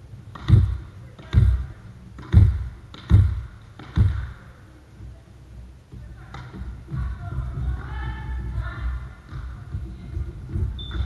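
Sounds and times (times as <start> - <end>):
volleyball bouncing on wooden floor: 0.3 - 4.5, 9.2 - 11.0.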